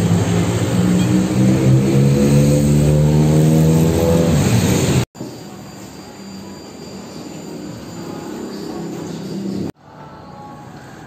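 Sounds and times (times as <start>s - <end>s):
vehicle engine accelerating: 0.0s - 5.1s
street noise: 0.0s - 11.0s.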